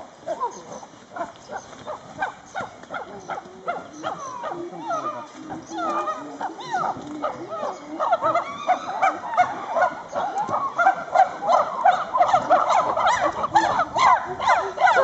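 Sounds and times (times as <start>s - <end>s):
chimpanzees hooting and screaming: 3.7s - 15.0s.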